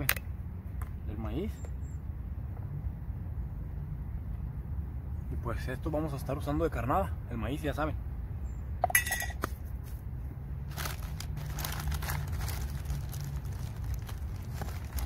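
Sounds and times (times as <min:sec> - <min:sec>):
low steady rumble: 0:00.0 - 0:15.0
sharp clink: 0:08.8 - 0:09.4
plastic packaging crinkling: 0:10.7 - 0:15.0.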